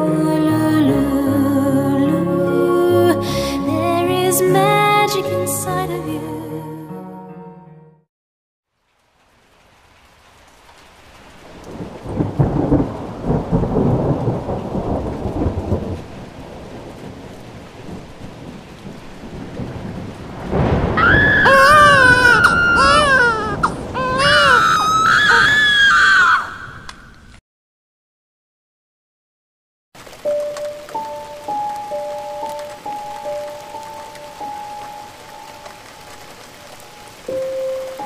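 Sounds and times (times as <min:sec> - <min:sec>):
rain falling: 0:08.7 - 0:27.4, 0:30.0 - 0:38.0
thunder rumbling: 0:11.3 - 0:27.3
baby crying: 0:21.0 - 0:26.9.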